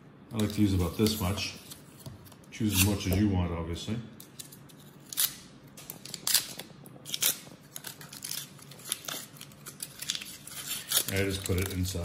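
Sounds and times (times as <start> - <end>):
foil wrapper crinkling: 4.4 - 12.0.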